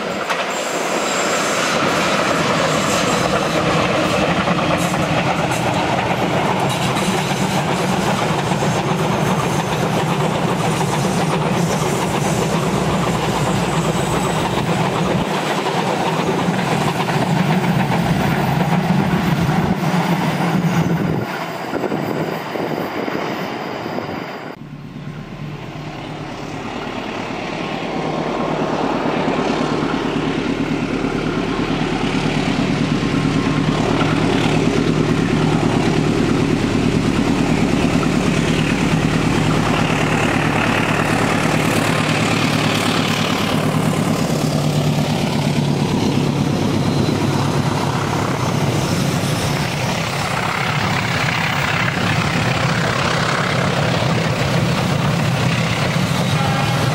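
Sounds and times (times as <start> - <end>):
diesel locomotive engine drone: 0.0 - 56.9
train rumbling on rails: 0.0 - 56.9.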